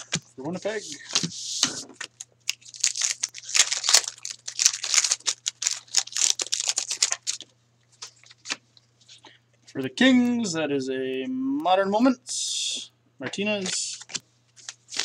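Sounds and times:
foil wrapper tearing and crinkling: 2.0s - 8.6s, 14.0s - 15.0s.

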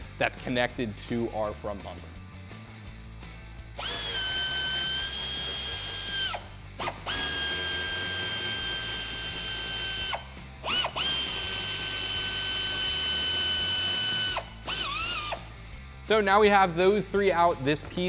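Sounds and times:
air ratchet whining: 3.7s - 15.5s.

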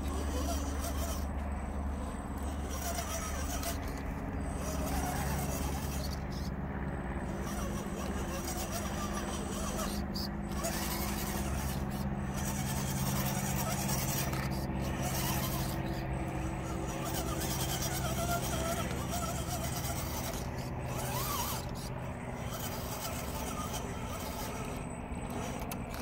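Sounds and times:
tyres scraping on logs: 0.0s - 6.5s, 7.2s - 26.0s
small electric motor humming: 0.0s - 26.0s.

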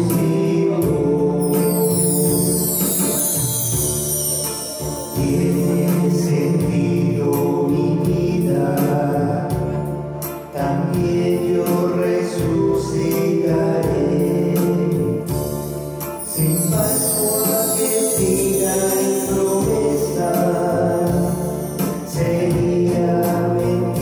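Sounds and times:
instrumental accompaniment: 0.0s - 24.0s
choir singing a hymn: 5.1s - 9.9s.

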